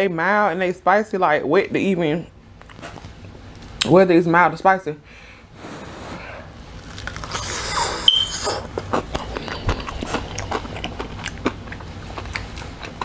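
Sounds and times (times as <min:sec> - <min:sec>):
crunchy chewing of fried chicken: 0:06.6 - 0:13.0
sharp click with high squeak: 0:08.1 - 0:08.4.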